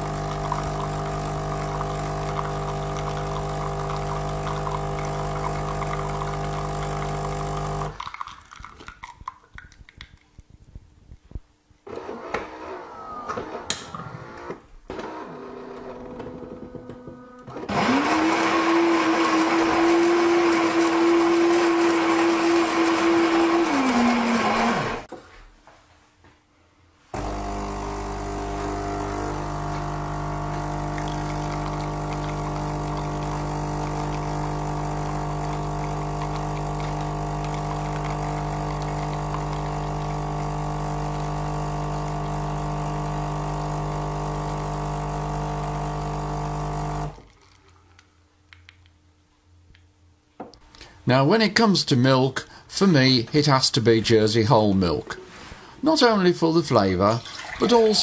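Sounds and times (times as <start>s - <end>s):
pump humming: 0.0s - 8.0s, 27.2s - 47.2s
espresso machine grinding beans: 0.0s - 8.1s, 11.9s - 25.1s, 27.2s - 47.4s.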